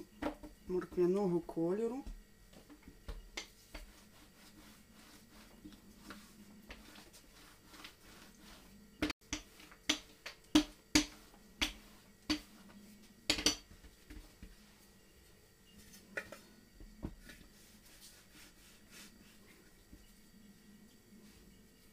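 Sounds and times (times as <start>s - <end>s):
hands patting dough: 2.0s - 14.6s
rolling pin knocking: 9.0s - 12.5s, 13.3s - 14.2s.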